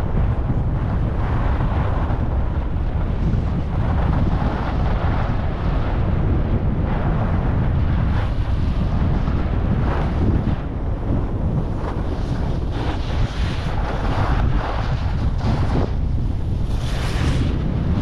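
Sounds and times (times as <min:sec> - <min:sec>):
wind buffeting microphone: 0:00.0 - 0:18.0
skis scraping over snow: 0:11.3 - 0:18.0.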